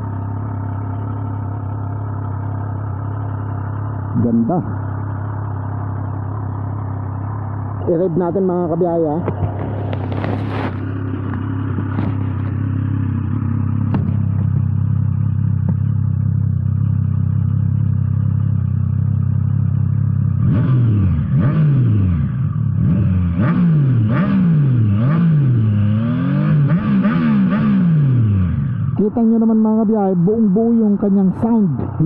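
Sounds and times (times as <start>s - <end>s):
motorcycle engine idling: 0.0s - 25.0s, 25.6s - 32.0s
engine revving: 7.8s - 14.6s, 20.2s - 32.0s.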